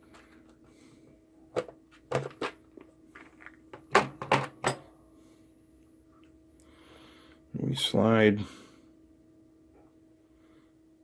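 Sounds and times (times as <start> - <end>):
connectors rattling in plastic box: 1.6 - 2.6.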